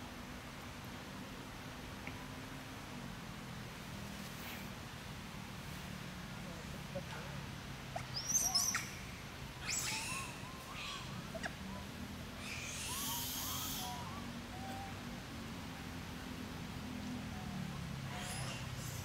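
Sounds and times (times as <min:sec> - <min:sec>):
low steady hum: 0:00.0 - 0:19.0
animal chirps and squeaks: 0:08.0 - 0:09.0, 0:09.6 - 0:11.6, 0:12.4 - 0:14.8, 0:18.1 - 0:19.0.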